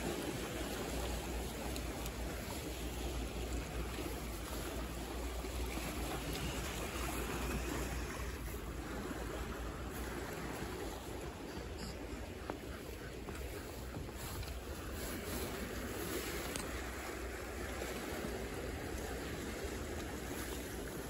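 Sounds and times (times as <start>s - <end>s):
sea water washing against wall: 0.0s - 11.6s.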